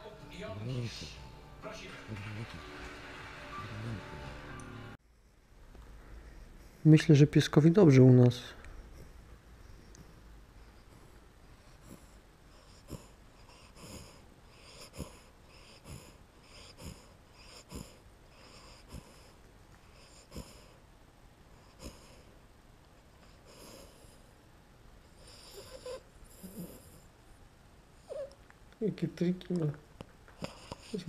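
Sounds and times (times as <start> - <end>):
puppy wheezy breathing: 6.1 - 7.0, 8.6 - 20.8, 21.5 - 22.4, 23.0 - 24.4, 25.1 - 27.2, 30.3 - 31.0.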